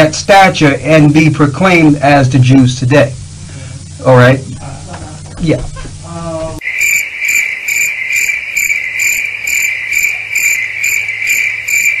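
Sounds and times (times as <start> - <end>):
crickets chirping: 6.6 - 12.0.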